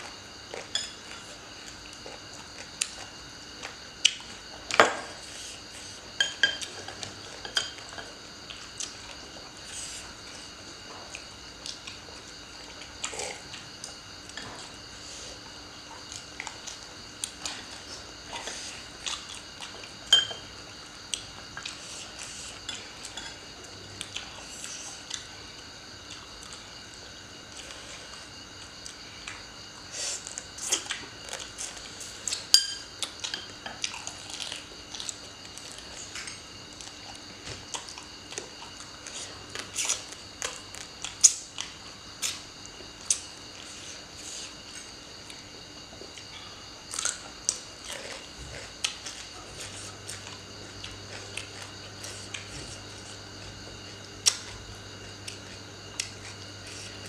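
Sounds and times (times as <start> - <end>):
faint steady hum: 0.0 - 57.0
utensils clinking on plates: 20.1 - 20.4.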